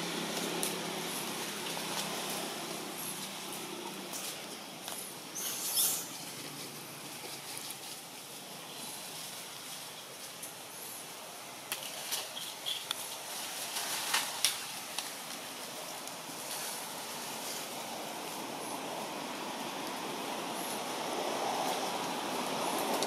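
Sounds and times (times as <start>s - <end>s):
steady hiss: 0.0s - 23.0s.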